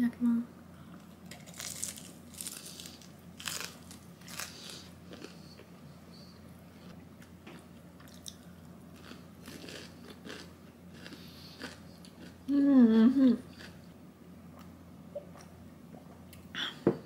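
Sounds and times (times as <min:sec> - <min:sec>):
person chewing crispy chicken: 0:01.4 - 0:05.7, 0:07.5 - 0:12.4.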